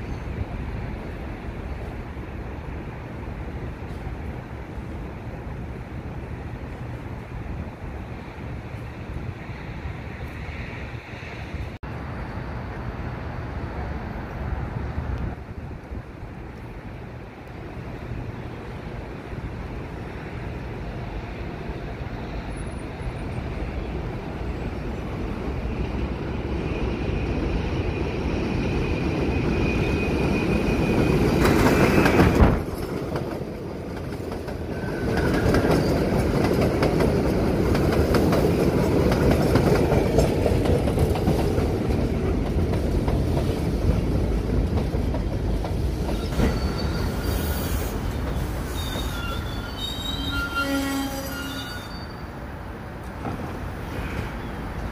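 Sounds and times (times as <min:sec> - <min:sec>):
subway train rumbling: 0:00.0 - 0:54.9
wheel squeals: 0:34.7 - 0:36.3, 0:46.0 - 0:52.4.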